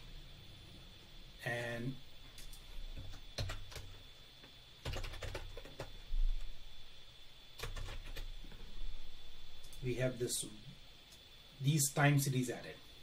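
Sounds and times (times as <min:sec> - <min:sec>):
keyboard keys clicking: 0:04.8 - 0:05.9, 0:07.6 - 0:08.3.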